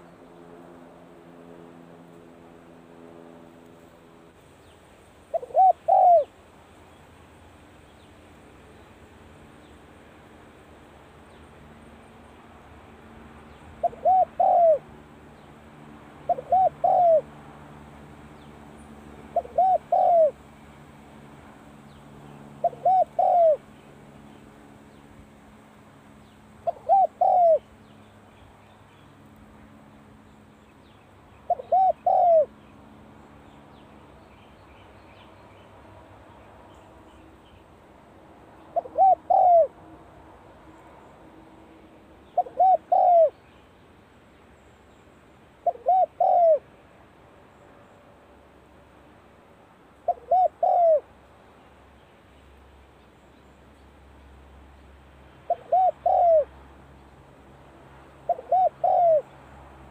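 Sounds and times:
dove cooing: 0:05.3 - 0:06.4, 0:13.8 - 0:14.9, 0:16.2 - 0:17.3, 0:19.3 - 0:20.4, 0:22.5 - 0:23.6, 0:26.6 - 0:27.7, 0:31.5 - 0:32.5, 0:38.7 - 0:39.8, 0:42.3 - 0:43.4, 0:45.6 - 0:46.6, 0:50.0 - 0:51.1, 0:55.5 - 0:56.5, 0:58.2 - 0:59.3.

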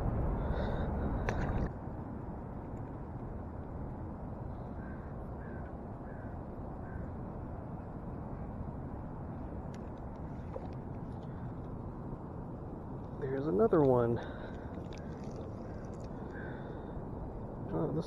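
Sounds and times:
low rumble: 0:00.0 - 0:05.4
open-air background noise: 0:00.0 - 0:18.0
bird calling faintly: 0:14.2 - 0:17.0.

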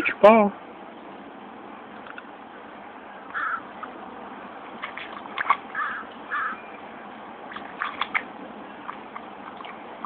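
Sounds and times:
water splashing in pool: 0:04.7 - 0:06.1, 0:07.4 - 0:10.0.

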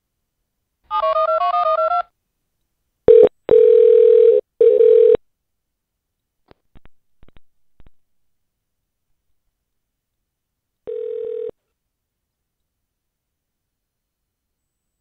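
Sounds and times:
telephone ringing tone: 0:03.1 - 0:05.2, 0:10.9 - 0:11.6
telephone keypad tones: 0:10.9 - 0:11.5.

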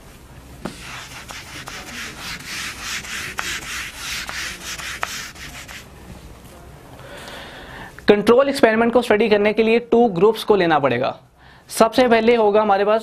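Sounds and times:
eraser rubbing on whiteboard: 0:00.6 - 0:05.9.

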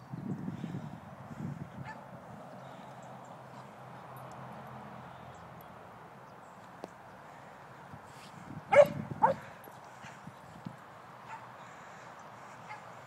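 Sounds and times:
dog barking: 0:01.8 - 0:02.0, 0:08.7 - 0:09.5, 0:12.6 - 0:13.0.

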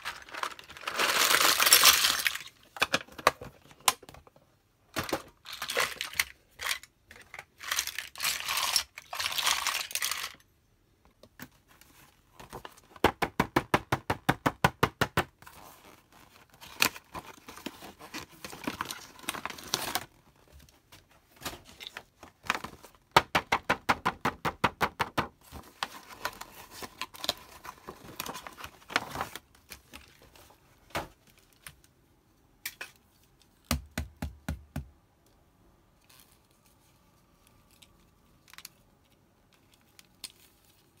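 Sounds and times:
packaging crinkling: 0:00.0 - 0:03.0, 0:15.6 - 0:20.2.

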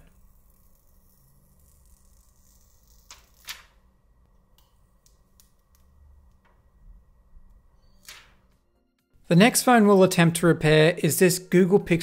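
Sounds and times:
plastic film peeling: 0:00.0 - 0:03.8.

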